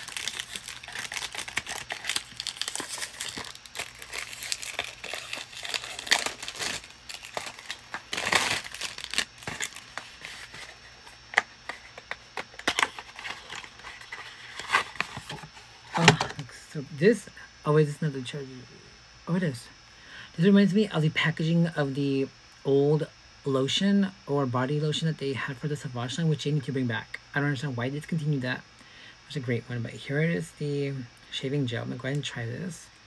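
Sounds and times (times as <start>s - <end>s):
plastic shrink-wrap crinkling and tearing: 0.0s - 10.8s, 12.4s - 15.4s.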